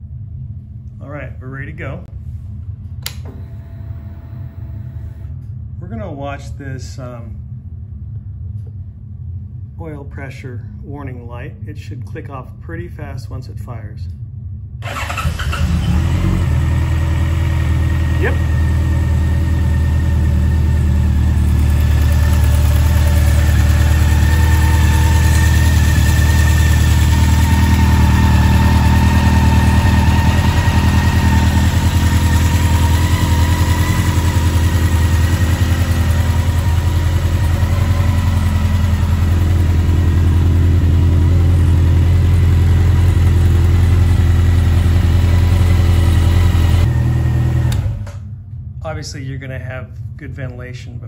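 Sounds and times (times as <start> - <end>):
motorcycle engine idling: 16.4 - 46.8.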